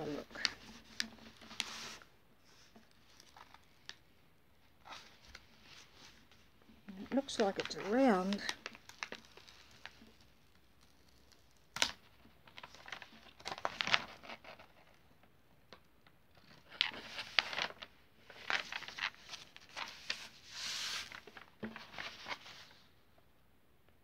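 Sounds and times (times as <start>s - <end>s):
plastic sheet rustling and crinkling: 4.8s - 14.8s, 16.8s - 22.9s.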